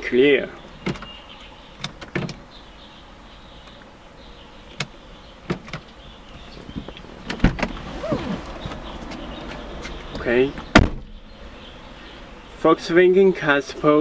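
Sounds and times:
faint steady hum: 0.0s - 14.0s
clicks and knocks in car cabin: 1.8s - 2.4s, 5.5s - 5.9s
deep thump: 7.2s - 11.3s.

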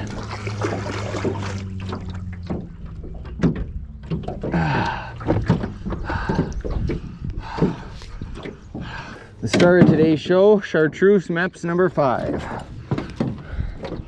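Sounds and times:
low steady hum: 0.0s - 9.6s
knocks in aluminium boat: 0.0s - 10.2s, 12.2s - 14.0s.

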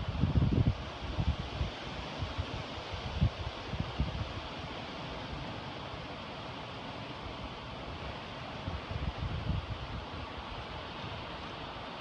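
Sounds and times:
wind buffeting microphone: 0.0s - 4.6s, 8.0s - 12.0s.

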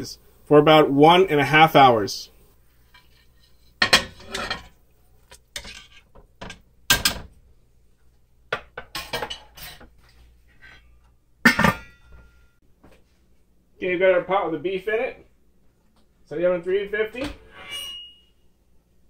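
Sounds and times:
plate and utensil clinking on pot: 2.9s - 4.8s, 5.5s - 7.3s, 8.6s - 9.9s, 11.5s - 12.4s.

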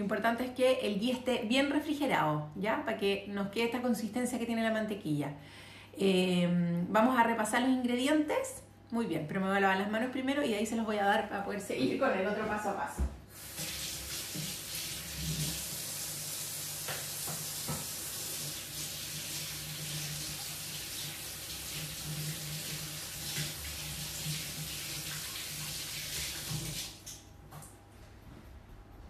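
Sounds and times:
tap water splashing into sink: 13.0s - 16.0s, 16.8s - 27.8s.

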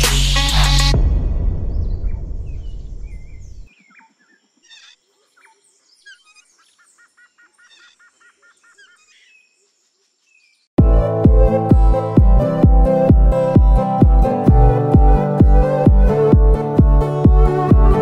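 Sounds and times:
bird calls chirps and whistles: 1.8s - 9.6s
background music: 10.8s - 18.0s.

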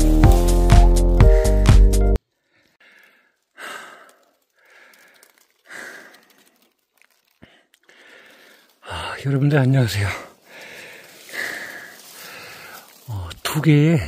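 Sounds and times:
electronic intro music: 0.0s - 2.2s
person breathing heavily: 1.1s - 6.7s, 7.3s - 9.2s, 10.0s - 13.2s.

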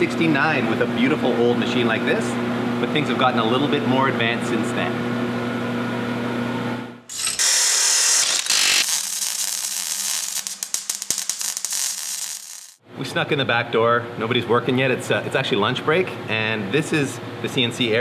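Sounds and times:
welding arc hissing and crackling: 7.1s - 12.8s.

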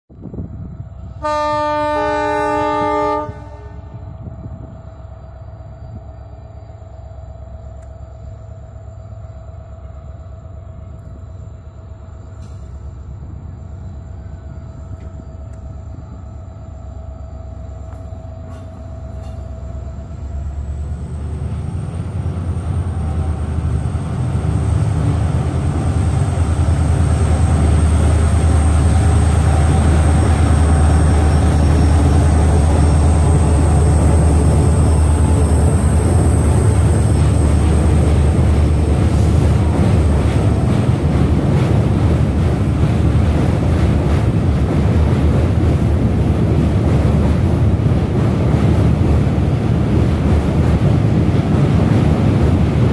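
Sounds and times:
diesel locomotive rumble: 0.1s - 52.9s
train wheels clattering on bridge: 17.8s - 19.7s, 22.1s - 52.9s.

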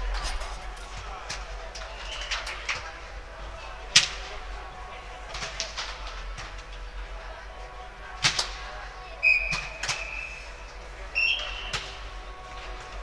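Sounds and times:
referee whistle blasts: 9.2s - 10.5s, 11.2s - 11.8s.

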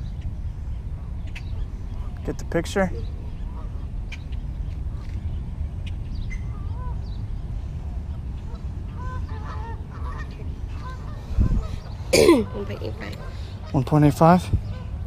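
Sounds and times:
steady low rumble: 0.0s - 15.0s
geese honking: 3.2s - 4.2s, 8.1s - 15.0s.

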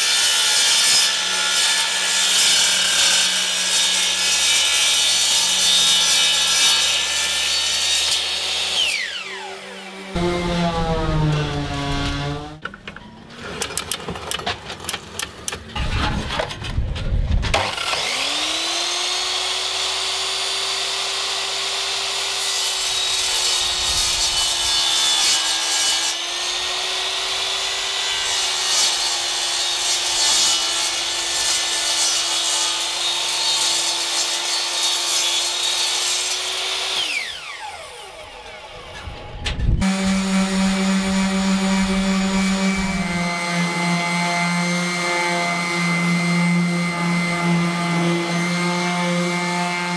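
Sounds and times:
mitre saw motor cutting: 0.5s - 12.6s, 17.6s - 38.8s, 39.8s - 45.0s
orbital sander running: 8.4s - 12.6s, 39.8s - 49.9s.

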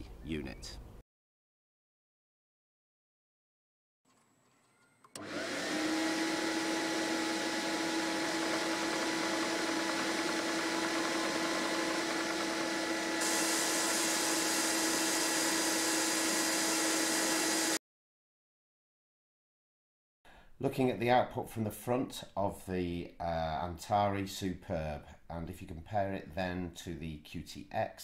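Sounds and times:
snow machine blower whir: 5.1s - 17.8s.

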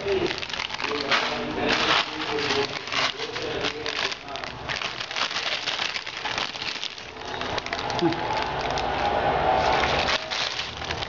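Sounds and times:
person speaking: 0.0s - 6.4s
plastic packet crinkling: 0.0s - 11.0s.

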